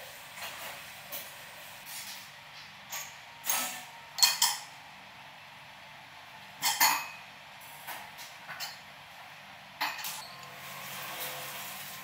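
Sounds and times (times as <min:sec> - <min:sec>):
utensils clinking on ceramic bowl: 0:02.9 - 0:04.7.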